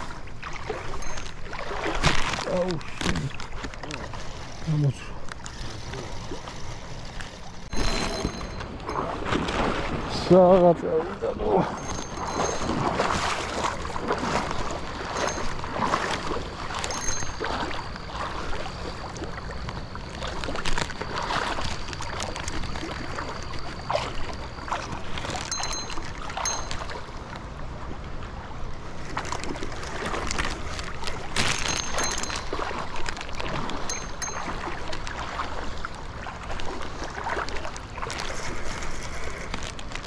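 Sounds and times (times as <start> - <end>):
water rushing and splashing: 0.0 - 40.0
faint high beeps: 7.7 - 9.2.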